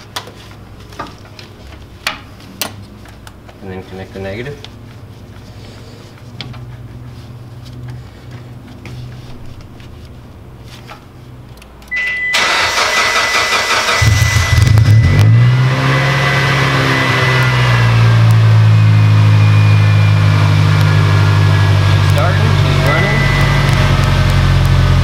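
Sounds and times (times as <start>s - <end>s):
high electronic warning tone: 11.9s - 24.9s
car engine starting and idling: 11.9s - 25.0s.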